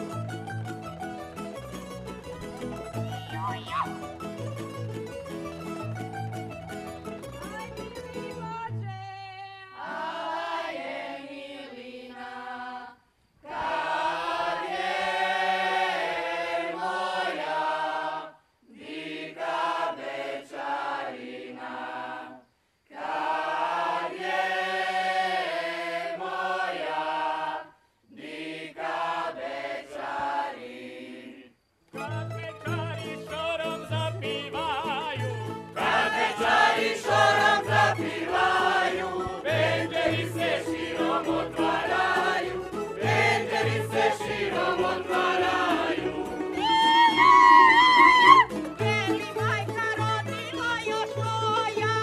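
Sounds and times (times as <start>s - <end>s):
plucked string instrument: 0.0s - 9.0s, 31.9s - 52.0s
folk singers singing unaccompanied: 7.5s - 52.0s.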